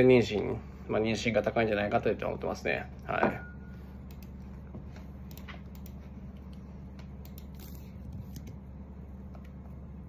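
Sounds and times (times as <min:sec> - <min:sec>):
low hum: 0:00.0 - 0:10.0.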